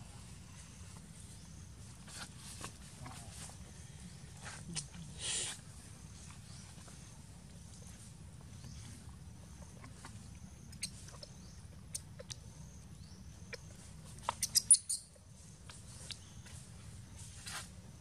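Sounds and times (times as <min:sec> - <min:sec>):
steady low hum: 0:00.0 - 0:18.0
baby monkey squeaking: 0:10.7 - 0:12.4, 0:13.4 - 0:16.3.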